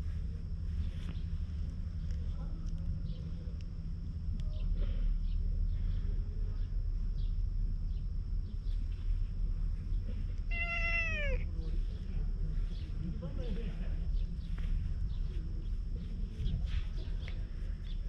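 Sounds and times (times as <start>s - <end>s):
low rumble: 0.0s - 18.0s
cat meowing: 10.5s - 11.4s.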